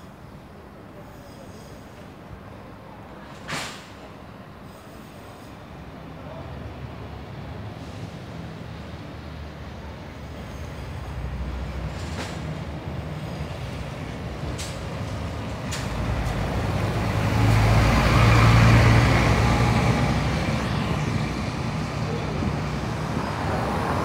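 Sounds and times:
bus diesel engine passing: 3.0s - 24.0s
tyres hissing on wet road: 3.4s - 5.9s, 15.8s - 24.0s.

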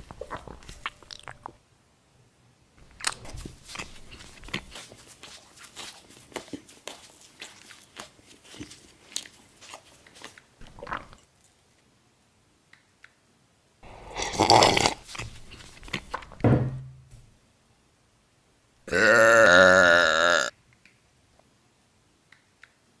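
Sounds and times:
crunchy biting and chewing: 0.0s - 1.6s, 2.8s - 11.2s, 13.9s - 16.3s
loud drinking and gulping: 0.0s - 1.6s, 2.8s - 4.8s, 10.6s - 11.2s, 13.8s - 16.4s, 18.9s - 20.5s.

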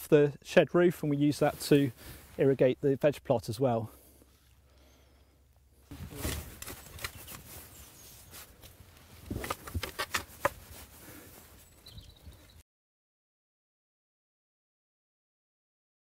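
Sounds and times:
spade digging into compost: 5.9s - 8.4s, 9.2s - 10.8s.

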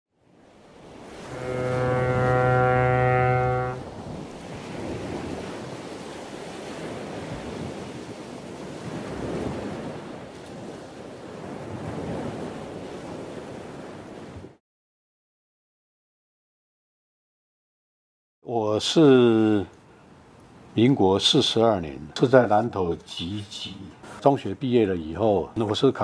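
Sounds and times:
ocean waves washing in: 0.2s - 14.6s, 18.8s - 26.0s
ship's horn blast: 1.0s - 4.2s.

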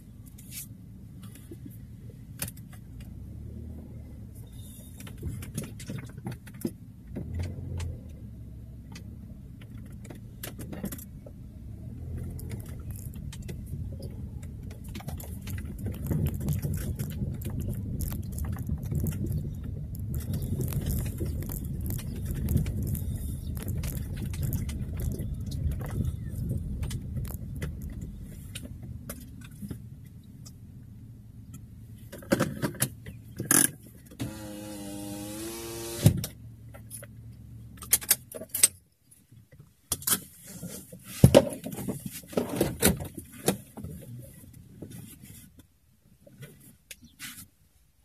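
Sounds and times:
car rumbling over dirt: 0.0s - 38.7s
running hum: 34.2s - 36.2s.

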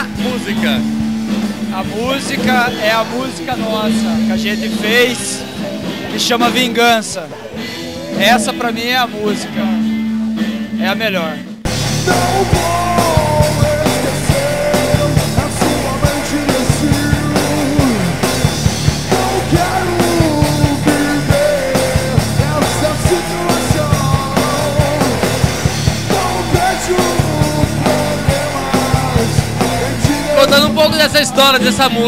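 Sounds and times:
melody line: 0.0s - 5.8s
drum kit hits: 0.0s - 6.2s, 11.6s - 31.3s
electric guitar: 0.0s - 6.2s, 7.3s - 32.0s
bass guitar: 0.0s - 32.0s.

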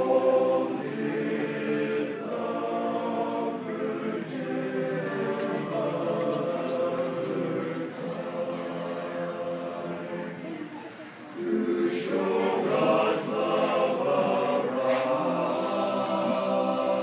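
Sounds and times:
men's barbershop chorus singing: 0.0s - 10.4s, 11.4s - 17.0s.

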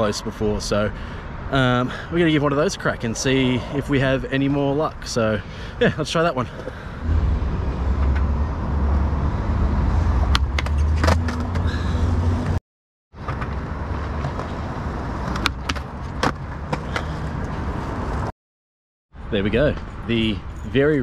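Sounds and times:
skateboard wheels rolling on concrete: 7.8s - 12.6s, 13.2s - 18.3s.

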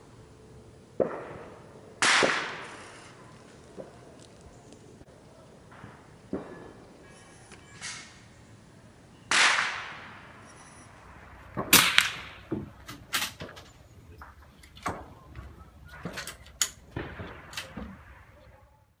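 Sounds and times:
rifle shots cracking: 1.0s - 3.1s, 11.0s - 18.6s.

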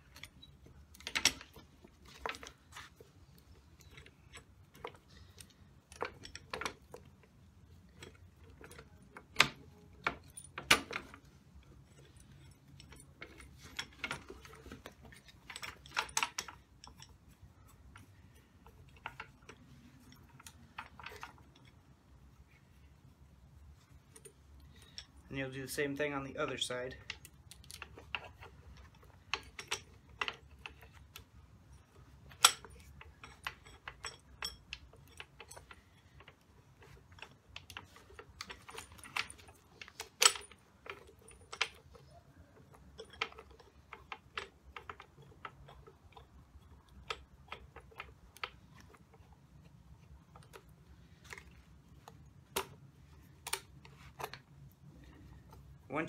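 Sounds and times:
metal clicks and clinks: 0.0s - 22.0s, 22.7s - 55.8s.

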